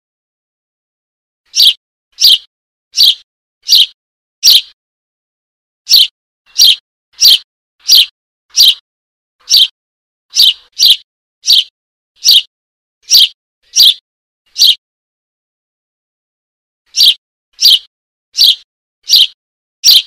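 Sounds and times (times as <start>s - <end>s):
bird chick begging chirps: 1.5s - 4.8s, 5.9s - 8.8s, 9.4s - 14.8s, 16.9s - 20.0s.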